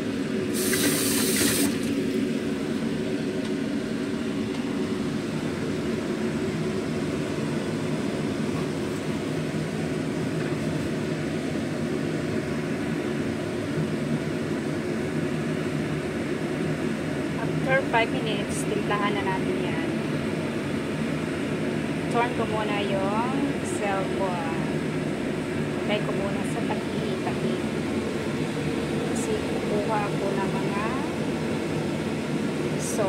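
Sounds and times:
soup pot rushing hum: 0.0 - 33.0
brief hiss: 0.5 - 1.8.

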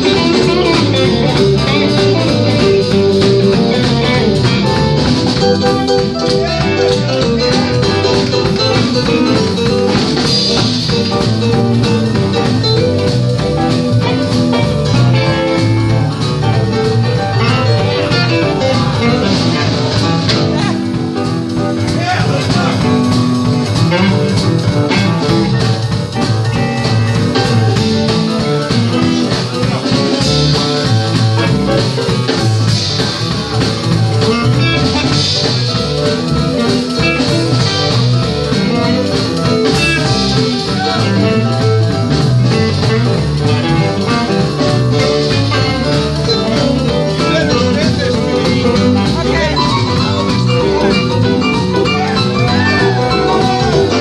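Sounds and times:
blues band playing: 0.0 - 54.0
electric bass guitar: 0.0 - 54.0
keyboard: 0.0 - 54.0.

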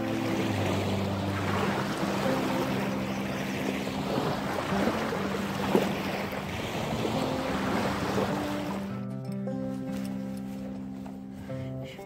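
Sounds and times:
small waves lapping on shore: 0.0 - 9.0
background music with held notes: 0.0 - 12.0.

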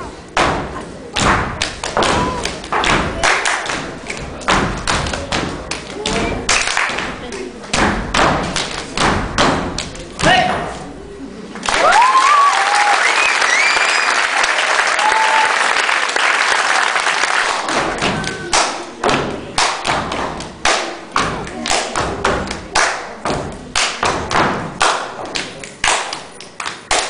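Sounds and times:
rhythmic hand claps and chest slaps: 0.3 - 10.4, 11.6 - 27.0
audience applause and cheering: 11.6 - 18.8.

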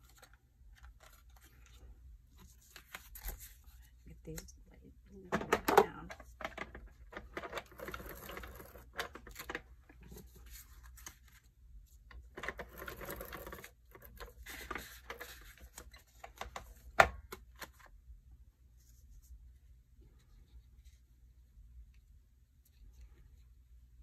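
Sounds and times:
paper handling: 0.0 - 4.4, 6.1 - 11.5.

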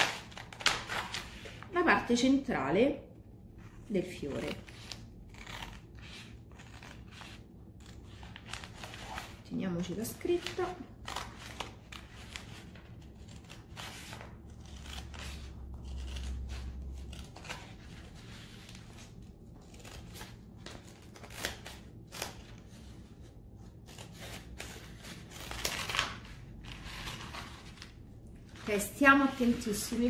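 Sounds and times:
scissors snipping paper: 4.2 - 22.6, 23.8 - 27.9.

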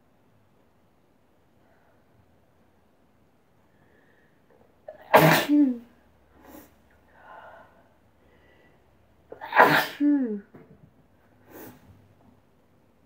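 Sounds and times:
woman sneezing: 5.0 - 5.8, 9.4 - 10.4.

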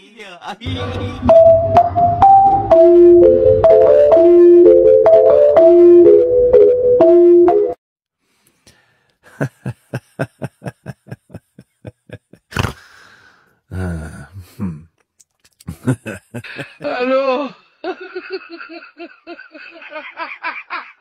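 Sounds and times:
mallet percussion music: 0.7 - 5.8
short vocal sounds: 12.5 - 13.1, 13.7 - 15.8.

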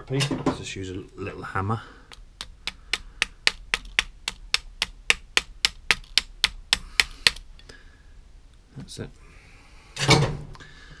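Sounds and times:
small hammer tapping metal: 2.1 - 7.4.

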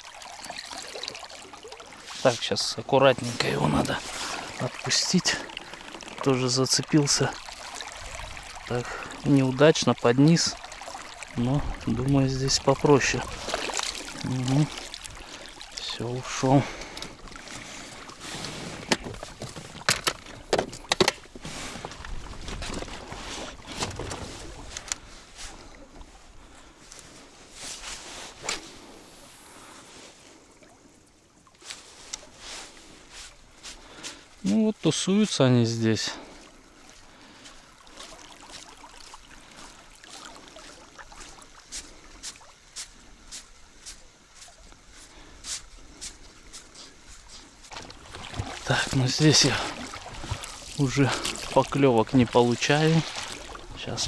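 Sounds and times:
river water lapping against boat: 0.0 - 54.0
water splashes: 0.0 - 54.0
fishing tackle clattering: 18.8 - 21.4
rubbing and rustling: 27.3 - 28.8.

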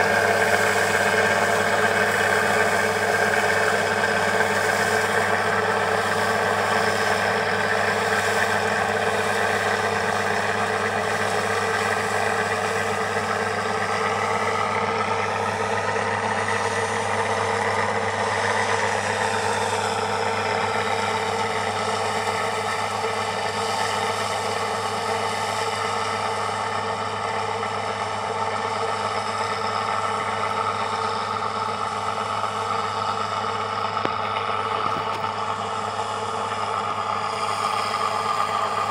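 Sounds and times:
farm machinery engine drone: 0.0 - 38.9
high whine: 26.1 - 38.9.

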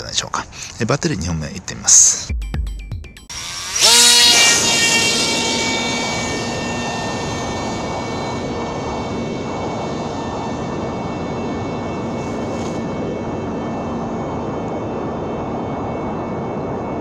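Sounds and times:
electric motor and propeller whine: 3.3 - 17.0.

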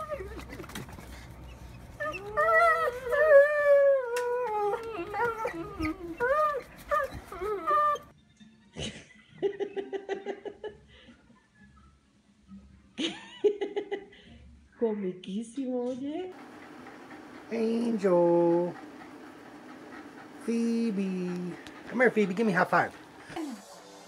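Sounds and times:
dogs howling: 2.0 - 8.1, 16.4 - 24.0.

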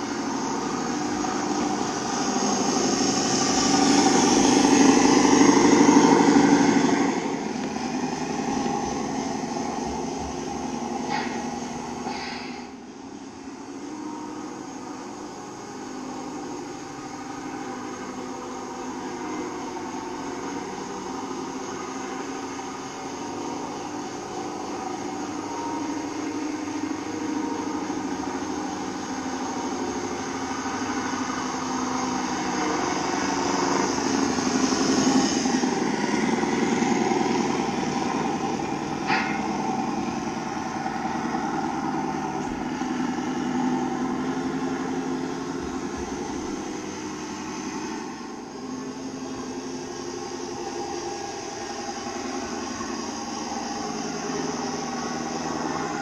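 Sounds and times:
model truck engine: 0.0 - 56.0.

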